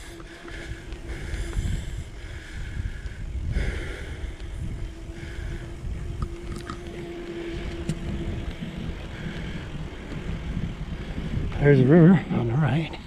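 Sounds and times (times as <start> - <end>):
faint steady hum: 0.0 - 12.0
low rumble of bicycle ride: 0.0 - 13.0
wind buffeting microphone: 0.0 - 13.0.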